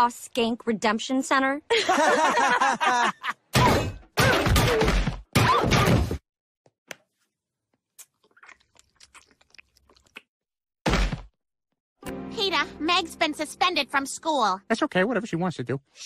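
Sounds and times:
cartoon impact smashes: 0:10.8 - 0:11.4.

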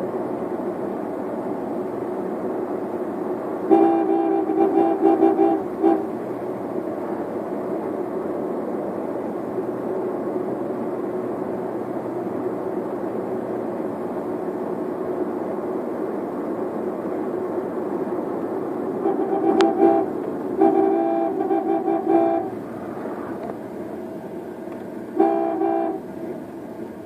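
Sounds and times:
car cabin road and engine noise: 0:00.0 - 0:27.0
vehicle horn short toots: 0:03.7 - 0:06.2, 0:19.0 - 0:22.6, 0:25.1 - 0:26.1.

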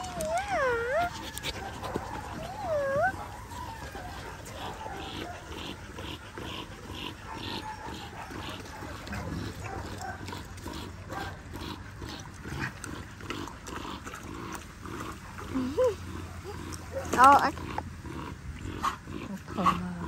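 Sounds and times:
dog panting: 0:00.0 - 0:14.2.

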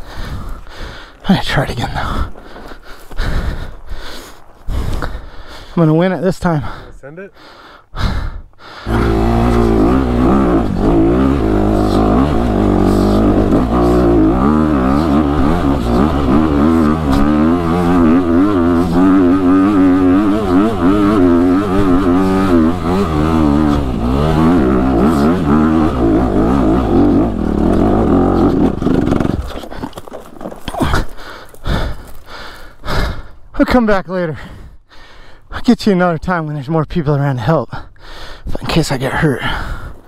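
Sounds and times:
dirt bike engine revving: 0:08.8 - 0:29.9.

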